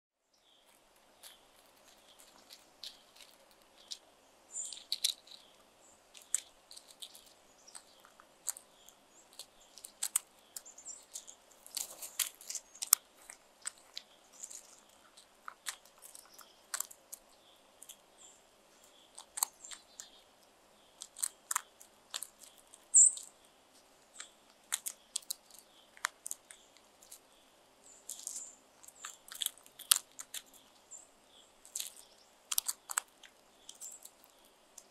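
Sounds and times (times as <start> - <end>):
beaks pecking on gravel: 0.3 - 34.9
short high bird chirps: 22.9 - 23.3.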